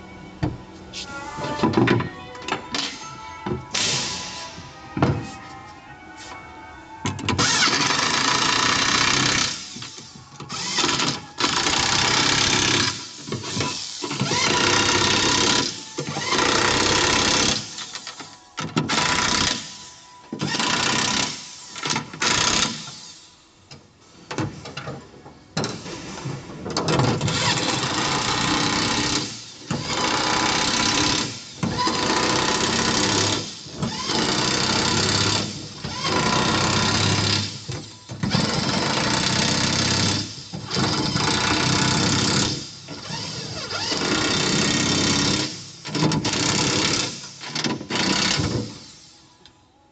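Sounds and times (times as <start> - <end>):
electric impact wrench bursts: 7.4 - 18.0, 20.4 - 23.2, 27.3 - 49.1.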